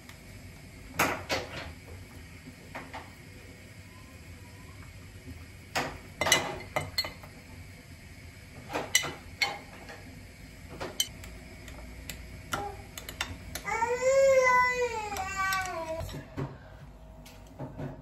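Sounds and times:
dishes and utensils clinking: 0:05.8 - 0:07.3.

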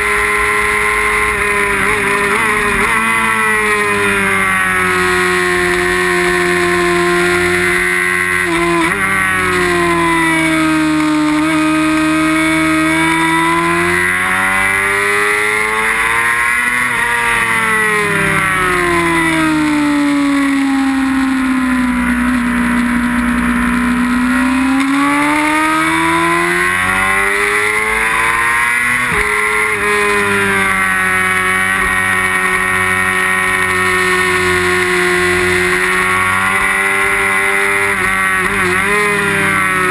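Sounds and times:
motorcycle engine at high revs: 0:00.0 - 0:39.9
motorcycle gear changes: 0:22.1 - 0:39.9.

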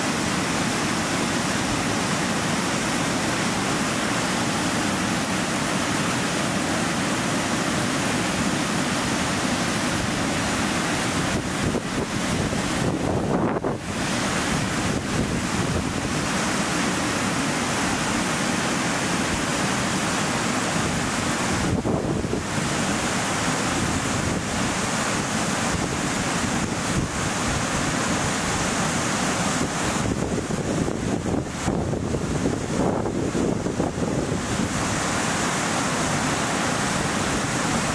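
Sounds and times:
wind rushing across microphone: 0:09.9 - 0:16.6, 0:20.8 - 0:22.8, 0:29.4 - 0:35.2.

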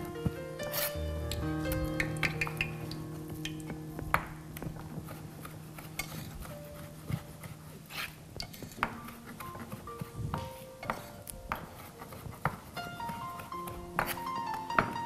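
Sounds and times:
soft background music: 0:00.0 - 0:15.0
knife tapping cutting board: 0:08.5 - 0:15.0.

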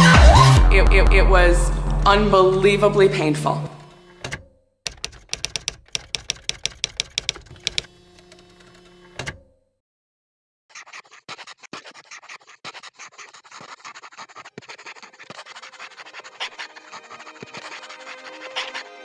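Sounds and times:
pencil scratching on paper: 0:04.9 - 0:07.9, 0:10.7 - 0:18.9.

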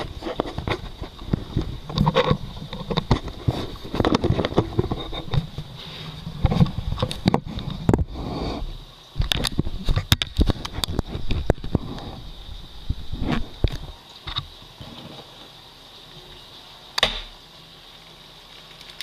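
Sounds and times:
handling knocks and clicks: 0:00.0 - 0:05.7
camera rubbing against shirt: 0:00.0 - 0:12.2, 0:13.0 - 0:15.2.

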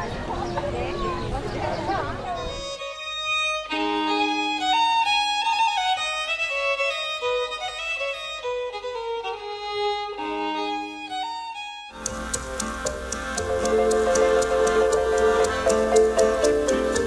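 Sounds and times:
bowed violin-like melody: 0:02.6 - 0:17.0
held low notes: 0:12.0 - 0:17.0.

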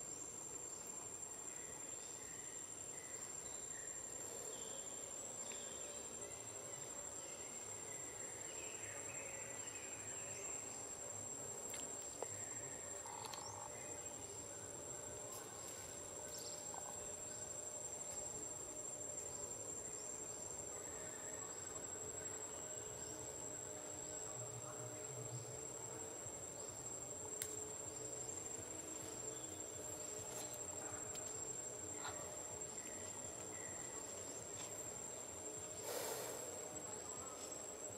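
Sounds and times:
insects trilling: 0:00.0 - 0:37.9
faint ticks: 0:13.0 - 0:13.5.

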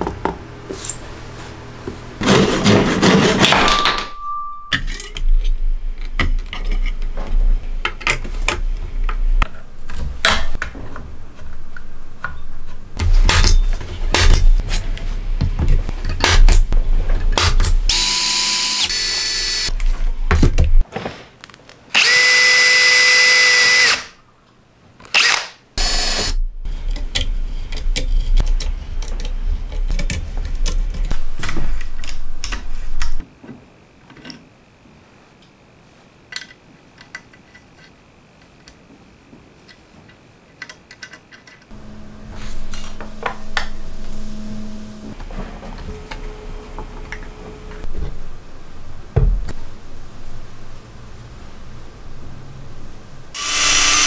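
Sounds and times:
small power tool running: 0:17.9 - 0:19.7, 0:53.4 - 0:54.0.

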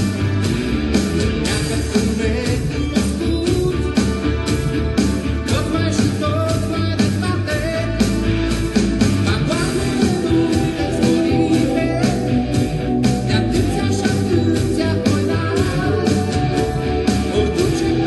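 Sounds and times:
guitar: 0:00.0 - 0:18.0
steady drum beat: 0:00.0 - 0:18.0
person singing: 0:01.4 - 0:04.2, 0:05.5 - 0:08.1, 0:09.2 - 0:18.0.

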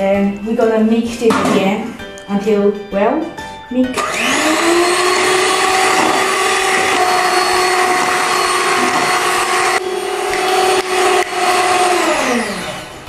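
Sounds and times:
electric hand mixer whirring: 0:03.9 - 0:13.0.

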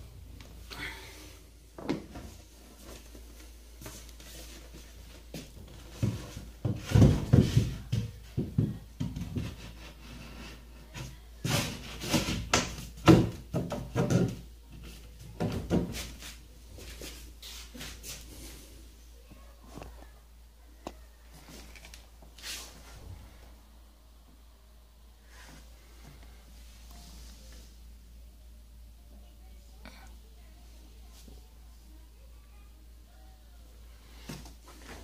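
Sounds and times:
shelf board knocking and scraping: 0:05.9 - 0:10.0, 0:11.4 - 0:14.5, 0:15.4 - 0:16.2.

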